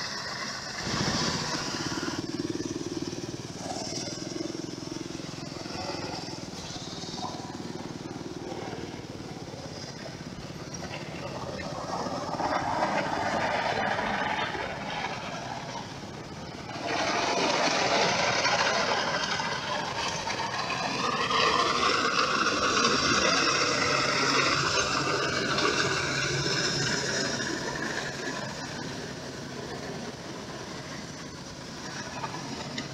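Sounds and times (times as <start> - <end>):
diesel engine running: 0.0 - 32.9
whine: 0.0 - 32.9
crawler tracks clattering: 3.0 - 32.9.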